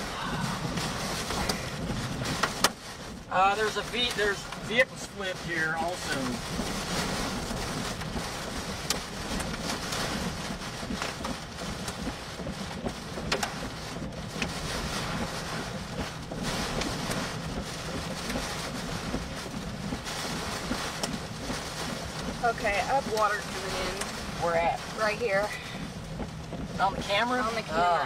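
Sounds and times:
wind buffeting microphone: 0:00.0 - 0:03.3
heavy rain: 0:00.0 - 0:28.0
debris ticking on vehicle: 0:00.7 - 0:27.8.

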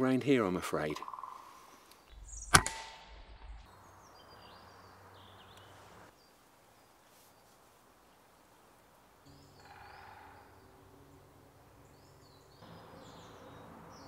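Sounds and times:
faint birdsong: 0:00.3 - 0:14.0
air rifle shot: 0:02.2 - 0:03.6.

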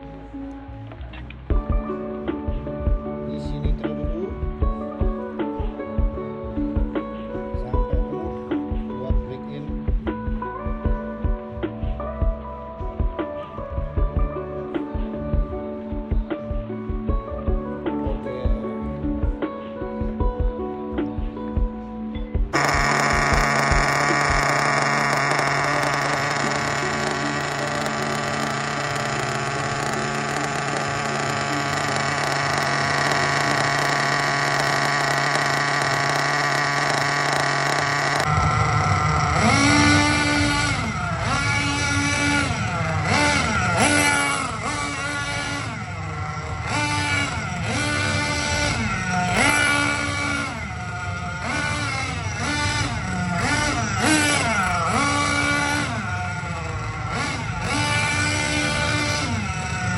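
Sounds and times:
model car engine revving: 0:22.6 - 0:59.9.

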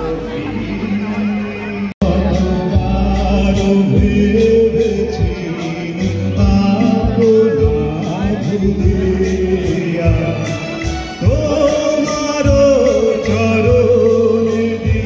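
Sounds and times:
heavy sustained bass line: 0:00.0 - 0:11.7
drums: 0:00.0 - 0:15.0
keyboards: 0:00.0 - 0:15.0
man singing into a microphone: 0:00.0 - 0:15.0.

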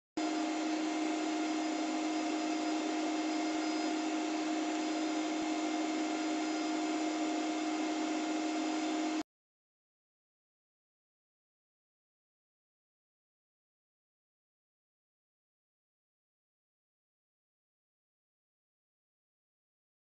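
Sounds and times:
milling machine whine: 0:00.2 - 0:09.2.

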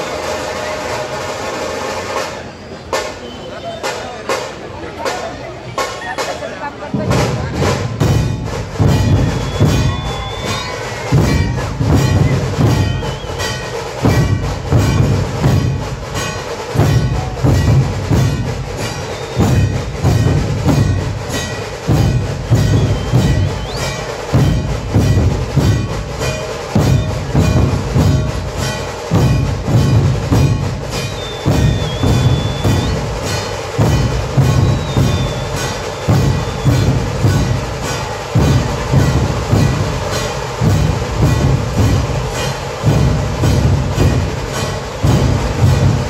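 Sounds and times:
booming barrel drums: 0:00.0 - 0:46.0
rapid sharp drum strokes: 0:00.0 - 0:46.0.

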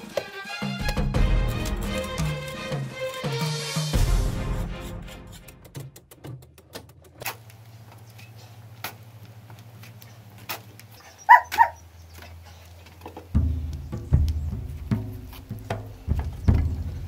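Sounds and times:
dog barking: 0:11.0 - 0:11.8.

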